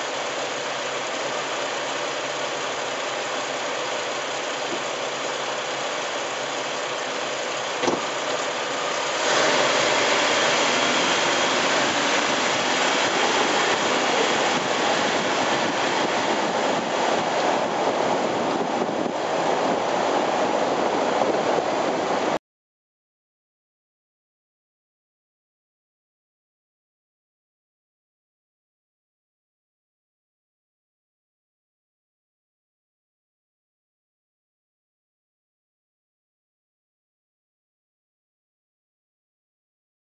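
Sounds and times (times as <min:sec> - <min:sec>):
tyre and wind noise: 0:09.1 - 0:22.4.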